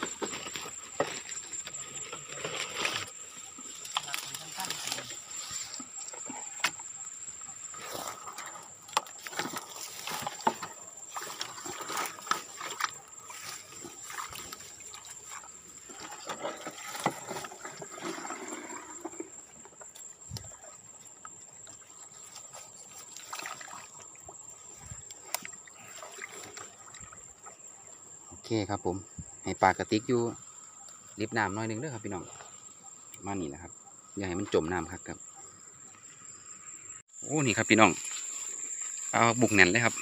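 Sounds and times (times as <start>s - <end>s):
grass and reeds rustling: 0.0s - 28.1s, 37.4s - 40.0s
water trickling and splashing: 7.7s - 28.2s, 37.4s - 40.0s.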